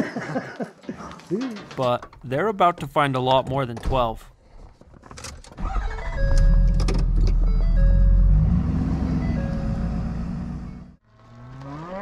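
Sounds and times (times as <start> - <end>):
truck engine in cab: 5.4 - 11.8.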